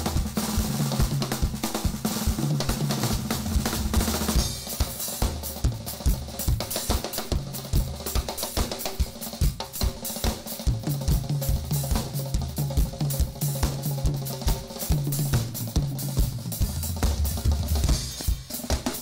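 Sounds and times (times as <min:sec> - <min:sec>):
drum kit playing groove: 0:00.0 - 0:19.0
bass line: 0:03.1 - 0:04.4.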